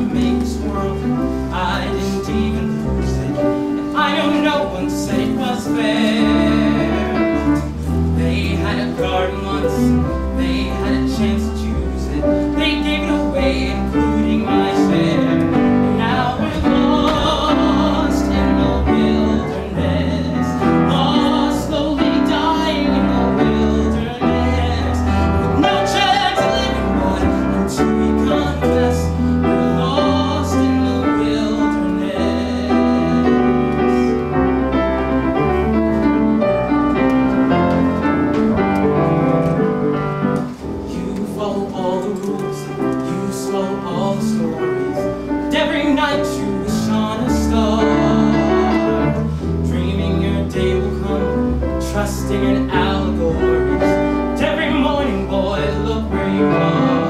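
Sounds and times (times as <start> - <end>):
man singing: 0.0 - 35.8, 40.5 - 57.0
piano accompaniment: 0.0 - 57.0.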